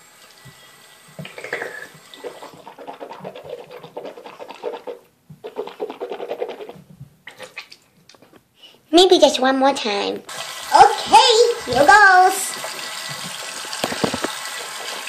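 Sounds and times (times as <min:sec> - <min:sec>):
tap water running into sink: 0:00.0 - 0:04.1, 0:10.3 - 0:15.0.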